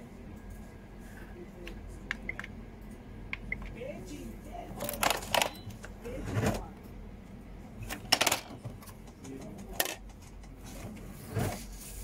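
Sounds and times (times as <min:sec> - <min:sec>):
printer mechanism clattering: 0:07.8 - 0:10.9.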